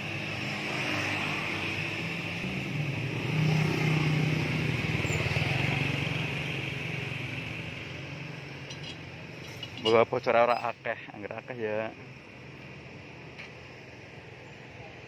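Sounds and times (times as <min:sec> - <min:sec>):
vehicle engine passing: 0:00.0 - 0:09.7.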